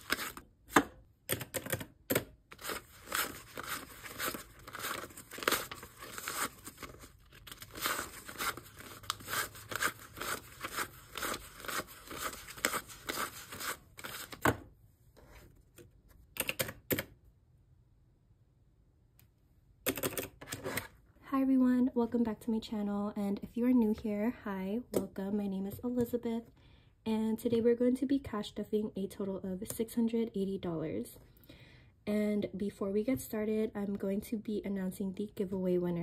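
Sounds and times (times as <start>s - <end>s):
banknotes rustling while counted: 0.0s - 0.4s, 1.3s - 14.4s.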